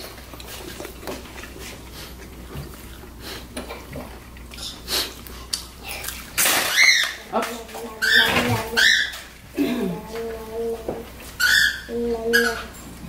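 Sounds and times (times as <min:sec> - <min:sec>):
man eating corn: 0:00.0 - 0:07.0.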